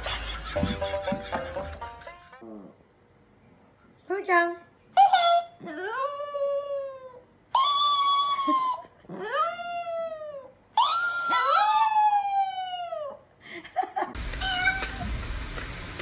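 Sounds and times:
small dog howling: 0:05.0 - 0:13.2.

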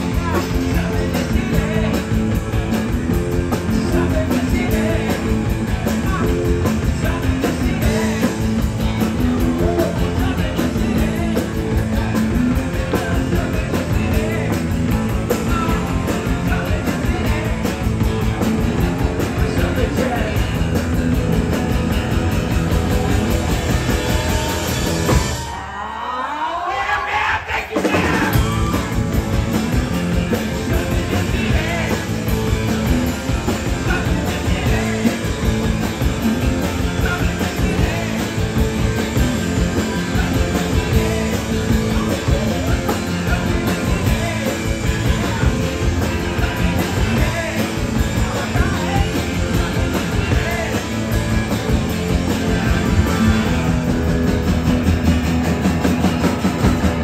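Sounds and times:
electric bass: 0:00.0 - 0:25.6, 0:27.9 - 0:57.0
drums: 0:00.0 - 0:57.0
man singing into microphone: 0:03.7 - 0:05.4, 0:12.8 - 0:17.8, 0:33.6 - 0:35.3, 0:39.8 - 0:51.0.

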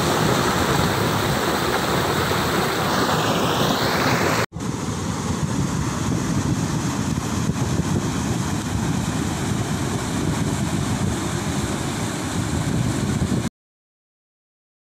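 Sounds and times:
river water rushing over weir: 0:00.0 - 0:13.4
wind buffeting microphone: 0:04.6 - 0:13.5.

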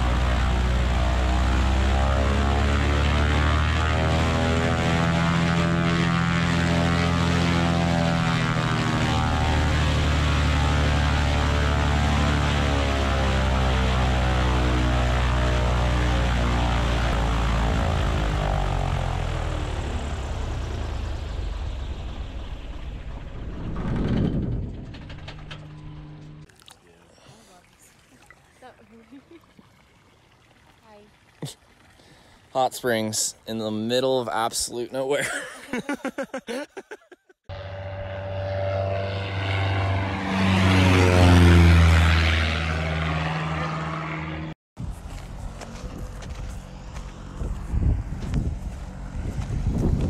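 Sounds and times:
propeller aircraft engine idling: 0:00.0 - 0:26.5, 0:37.5 - 0:50.0.

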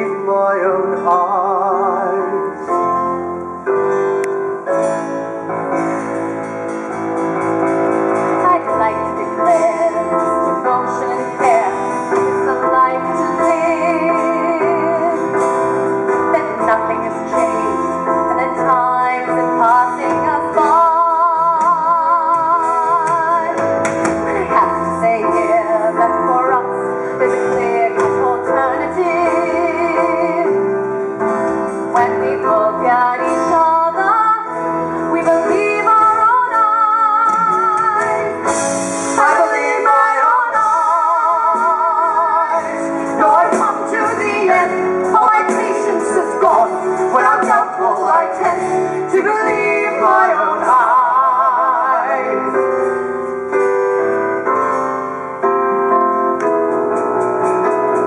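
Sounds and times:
woman singing with vibrato: 0:00.0 - 0:02.6, 0:08.3 - 0:30.7, 0:31.9 - 0:53.0
band accompaniment: 0:00.0 - 0:58.0
other voices singing: 0:39.2 - 0:52.7.

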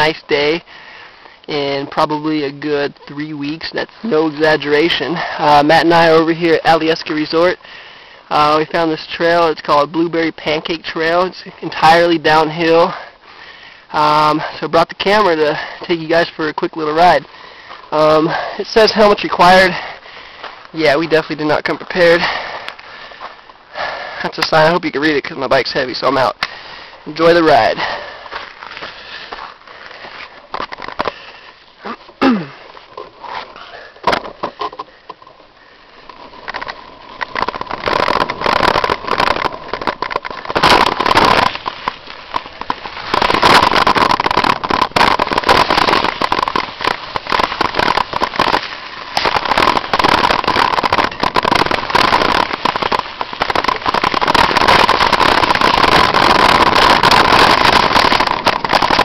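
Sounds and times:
bike rattle and rush: 0:32.0 - 0:59.0
bike clicks and knocks: 0:36.0 - 0:48.1.

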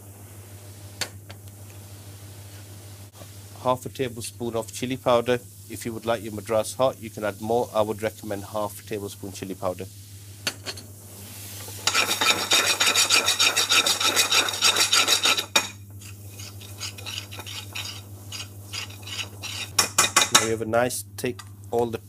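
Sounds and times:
metal spoon scraping frying pan: 0:11.7 - 0:20.5.

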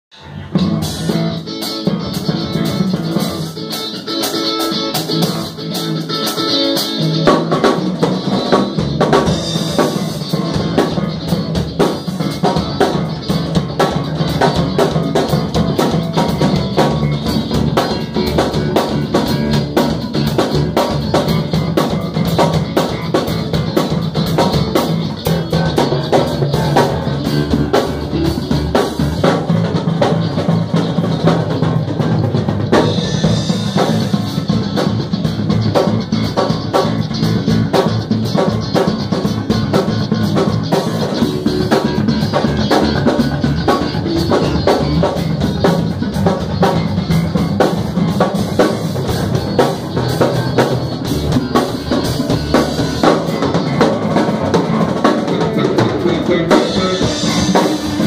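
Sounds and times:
drum kit: 0:00.1 - 0:58.0
electric bass: 0:00.1 - 0:58.0
electric guitar: 0:00.1 - 0:58.0.

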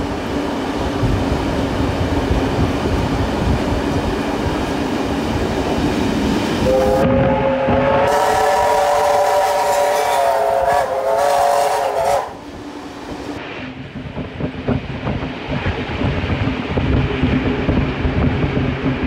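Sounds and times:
train running: 0:00.0 - 0:19.0
steam locomotive whistle: 0:06.6 - 0:12.5.

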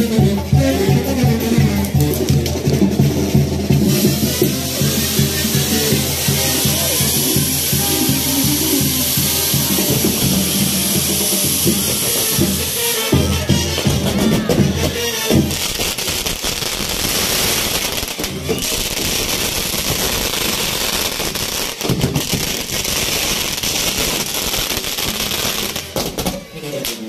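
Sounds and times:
music: 0:00.0 - 0:27.0
firework crackling: 0:00.7 - 0:27.0.

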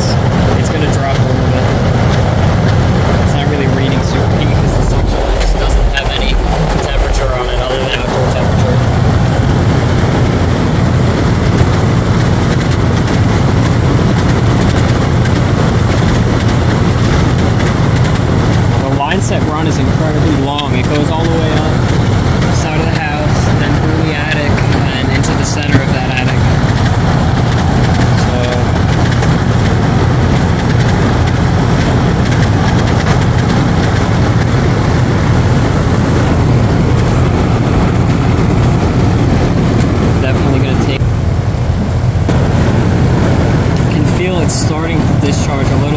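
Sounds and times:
air conditioner unit humming: 0:00.0 - 0:45.9.

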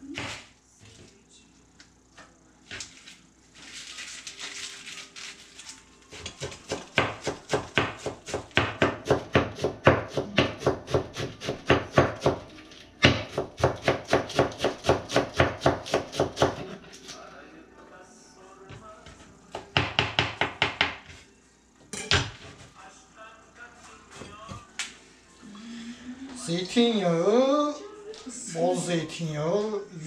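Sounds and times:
knife chopping on wooden board: 0:06.1 - 0:12.4, 0:13.0 - 0:16.6.

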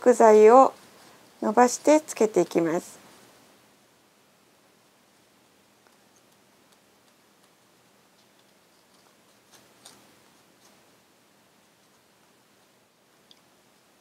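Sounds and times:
faint paper ticks: 0:05.8 - 0:10.8.

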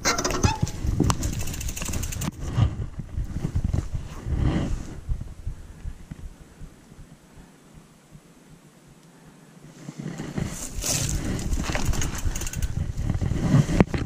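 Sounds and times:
rapid ticking: 0:01.0 - 0:02.4, 0:11.5 - 0:13.0
bike crashing on rocks: 0:10.5 - 0:12.9.

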